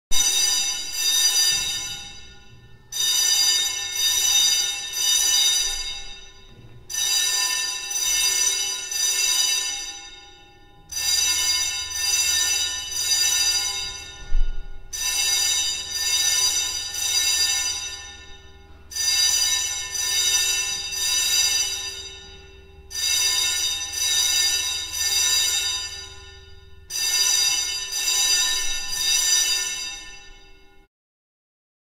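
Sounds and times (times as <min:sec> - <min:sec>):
fire alarm bell ringing: 0:00.1 - 0:30.9.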